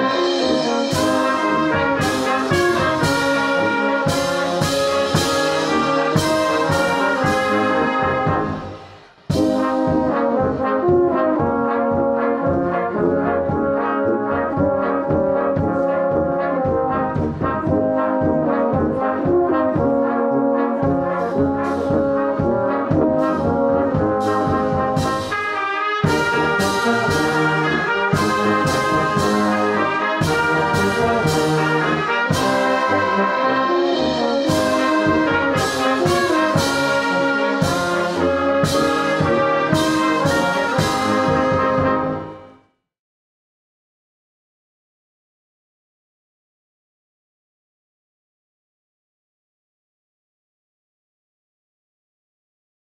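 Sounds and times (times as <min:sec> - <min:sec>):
drum strokes: 0:00.0 - 0:10.2, 0:21.7 - 0:42.2
brass band playing a hymn: 0:00.0 - 0:42.6.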